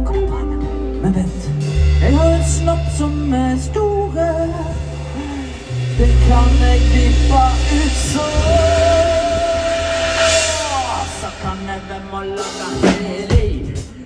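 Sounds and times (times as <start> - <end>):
live rock band playing: 0.0 - 14.0
person singing: 0.0 - 14.0
drum hits: 4.5 - 14.0.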